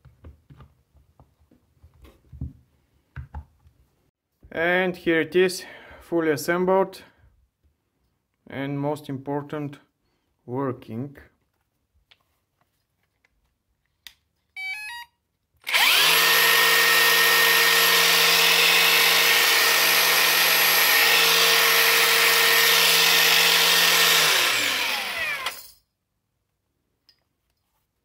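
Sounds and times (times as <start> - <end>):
angle grinder motor running: 15.6 - 25.6.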